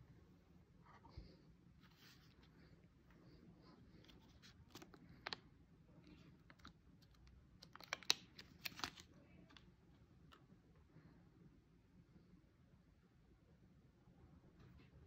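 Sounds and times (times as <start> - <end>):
packaging pouch crinkling: 6.5 - 9.1.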